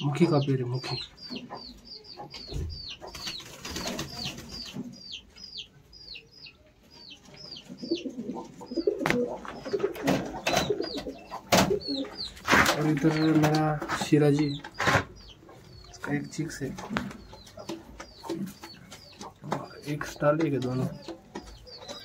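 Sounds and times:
pigeon squab peeping: 0.8s - 22.0s
pigeons cooing: 7.0s - 15.7s.

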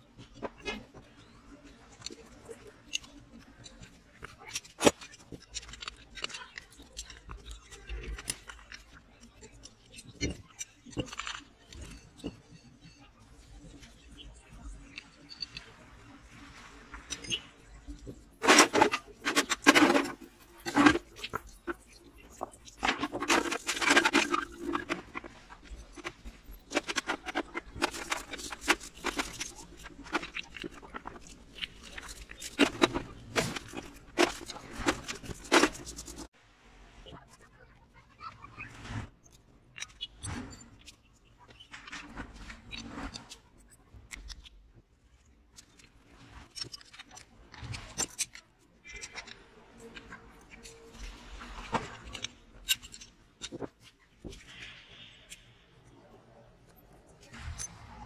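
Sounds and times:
metal parts clicking and scraping: 0.2s - 36.3s, 39.0s - 56.0s
brush scraping engine parts: 16.9s - 36.3s.

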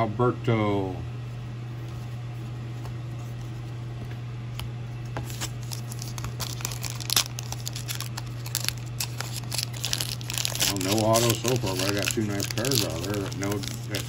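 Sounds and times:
low electrical hum: 0.0s - 14.0s
foil wrapper crinkling and tearing: 5.2s - 14.0s.

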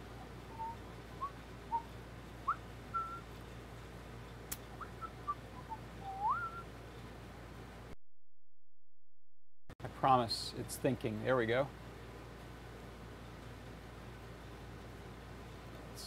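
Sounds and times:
man whistling: 0.5s - 1.9s, 2.5s - 3.3s, 4.8s - 6.7s.

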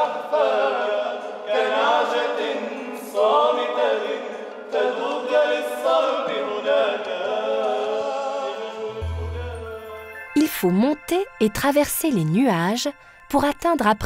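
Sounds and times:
men singing a hymn unaccompanied: 0.0s - 10.0s
low held drone voice: 8.9s - 10.1s.

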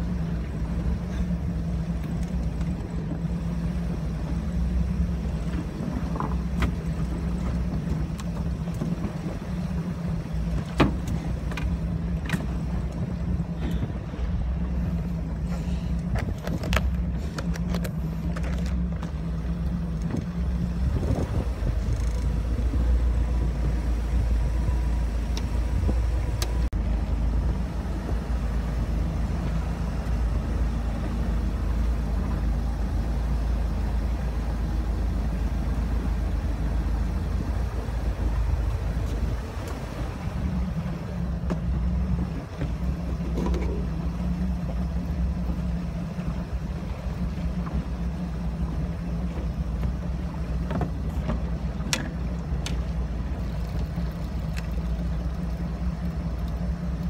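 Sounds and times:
boat engine running: 0.0s - 57.0s
wind rumbling on microphone: 0.0s - 57.0s.

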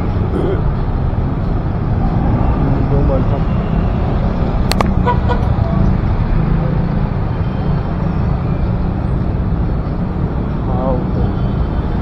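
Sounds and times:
city street traffic: 0.0s - 12.0s
sharp clicks: 4.6s - 5.0s.

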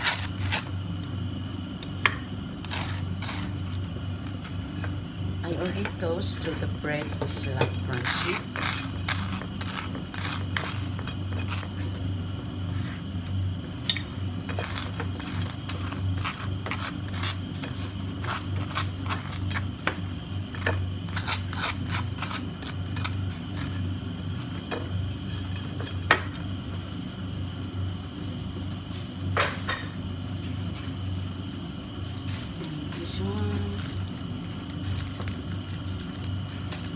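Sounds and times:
knife scraping toast: 0.0s - 0.7s, 7.9s - 11.7s, 14.5s - 19.7s, 20.6s - 23.9s
steady low hum: 0.0s - 36.9s.

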